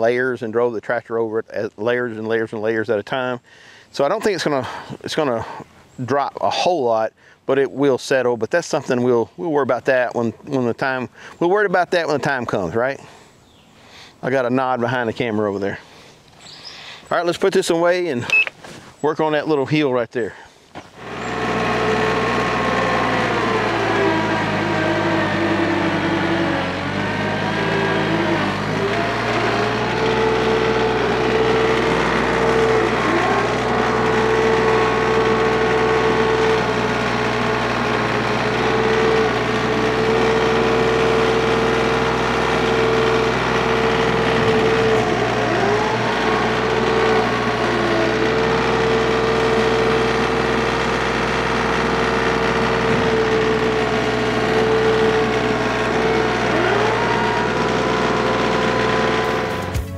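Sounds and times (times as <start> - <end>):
tractor diesel engine running: 19.6 - 59.9.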